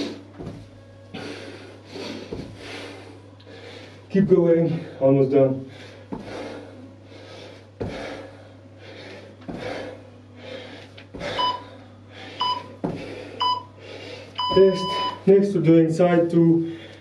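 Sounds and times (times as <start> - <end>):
feet thudding on hard floor: 0.3 - 0.8, 2.3 - 2.6, 6.1 - 6.5, 7.8 - 8.2, 9.4 - 9.9, 11.2 - 11.4, 12.8 - 13.2
timer short beeps: 14.4 - 15.2.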